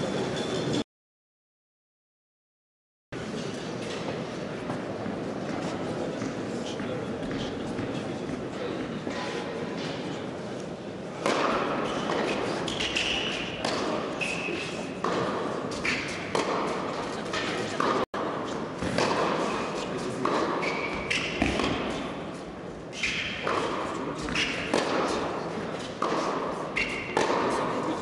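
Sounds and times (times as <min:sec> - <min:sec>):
spectators chatting: 0:03.2 - 0:28.0
tennis ball bouncing: 0:11.2 - 0:14.1, 0:15.0 - 0:22.2, 0:23.4 - 0:27.9
racket striking tennis ball: 0:11.2 - 0:22.3, 0:22.9 - 0:28.0.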